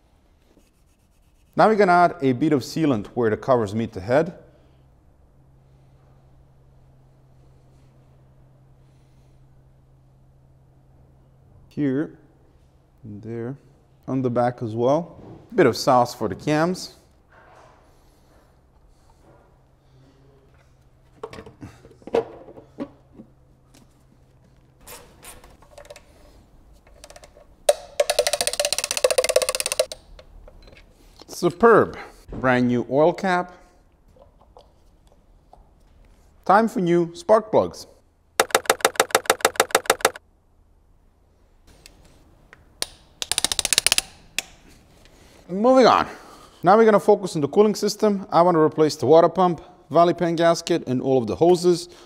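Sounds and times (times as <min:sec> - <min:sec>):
fast sharp clicks: 0:27.0 - 0:30.0, 0:38.4 - 0:40.2, 0:42.8 - 0:44.5
ratchet wrench clicking: 0:28.0 - 0:30.0, 0:38.4 - 0:40.2, 0:43.2 - 0:44.1.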